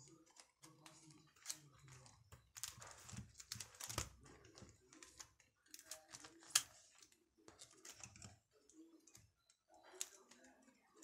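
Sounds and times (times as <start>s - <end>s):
plastic sleeves rustling and clicking: 0.0s - 11.0s.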